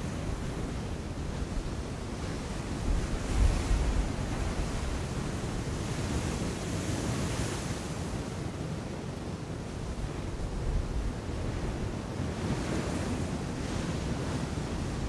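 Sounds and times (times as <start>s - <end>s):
wind rumbling on microphone: 0.0s - 7.6s.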